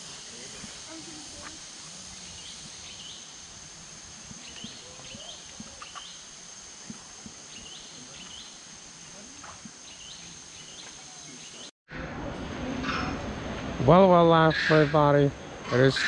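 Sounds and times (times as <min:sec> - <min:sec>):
high-pitched insect drone: 0:00.0 - 0:11.6
birds chirping: 0:02.0 - 0:03.4, 0:04.3 - 0:06.4, 0:07.4 - 0:08.7, 0:09.4 - 0:11.7.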